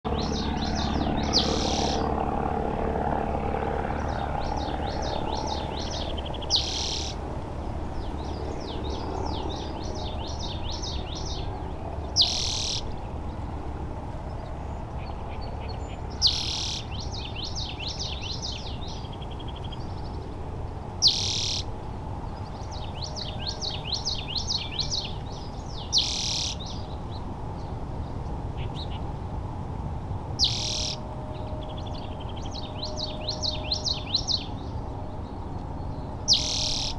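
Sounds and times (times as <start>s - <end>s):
low background rumble: 0.1s - 26.0s
birds singing trills: 0.1s - 29.3s, 30.4s - 36.9s
bird call: 5.5s - 7.2s, 12.2s - 12.9s, 15.3s - 18.7s, 21.0s - 21.7s, 25.8s - 26.8s, 30.4s - 31.0s, 36.3s - 36.9s.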